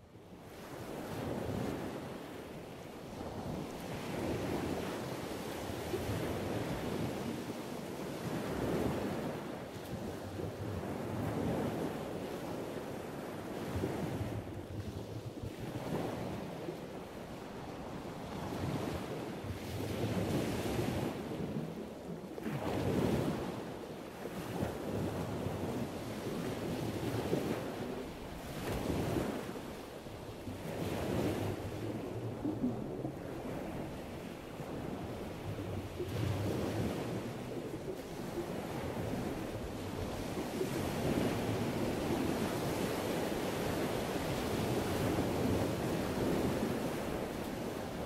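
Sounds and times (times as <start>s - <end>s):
ocean waves washing in: 15.6s - 48.0s.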